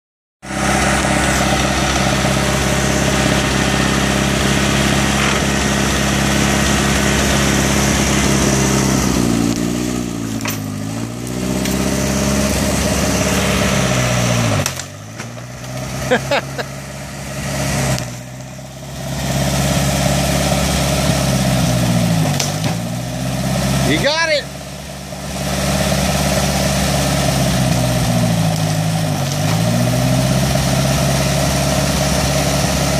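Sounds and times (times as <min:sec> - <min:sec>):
tractor engine lugging under load: 0:00.5 - 0:23.8.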